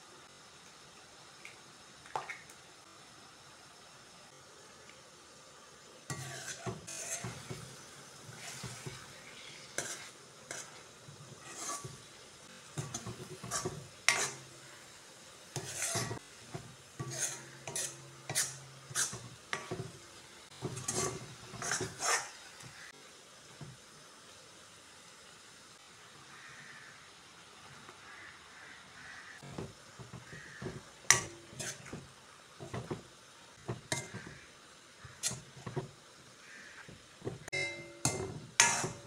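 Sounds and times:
metal spatula scraping metal pan: 6.1s - 12.2s, 12.8s - 14.7s, 15.5s - 22.4s, 29.4s - 33.0s, 33.6s - 35.9s, 36.7s - 39.0s.

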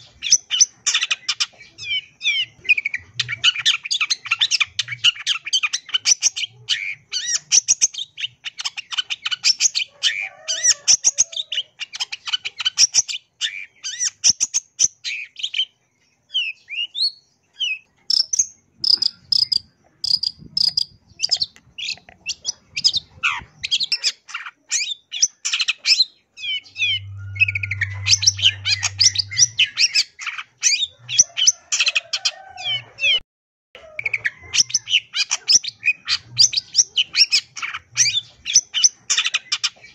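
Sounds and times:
shrike singing fast chatter: 18.1s - 25.8s, 26.4s - 32.8s.

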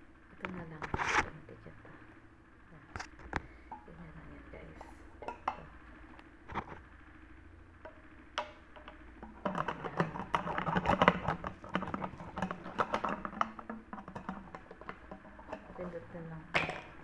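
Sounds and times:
plastic bottle clicks and knocks: 7.8s - 15.7s, 16.5s - 17.0s.

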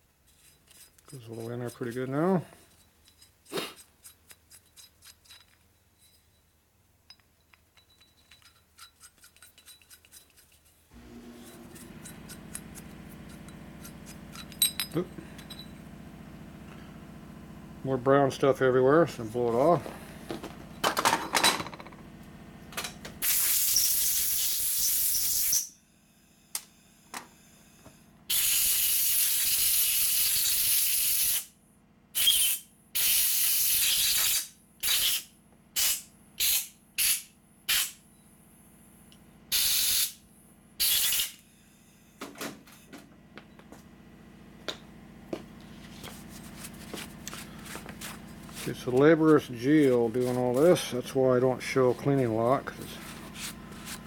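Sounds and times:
compressed air blasts: 23.2s - 25.7s, 28.3s - 31.5s, 32.2s - 38.0s, 39.5s - 40.2s, 40.8s - 41.5s.

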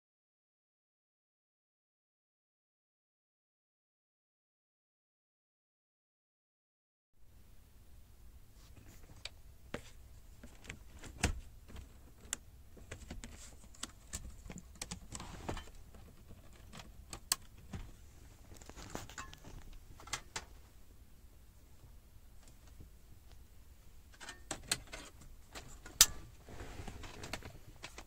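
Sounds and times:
cable plugs clicking and rattling: 9.0s - 20.7s, 24.1s - 26.4s, 27.0s - 28.0s.

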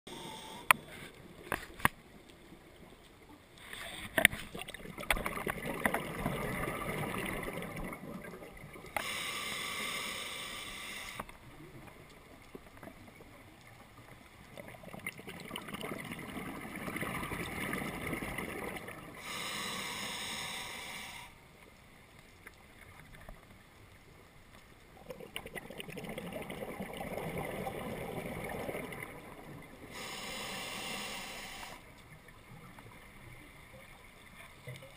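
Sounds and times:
diver breathing through regulator: 0.1s - 1.1s, 8.9s - 11.3s, 19.2s - 21.4s, 29.9s - 31.9s.

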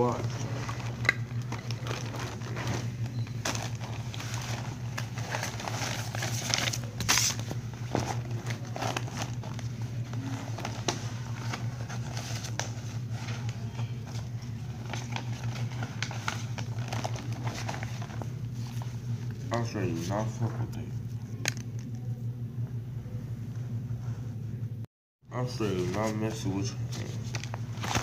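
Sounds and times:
steady low hum: 0.0s - 28.0s
clothing rustling: 0.1s - 19.1s.

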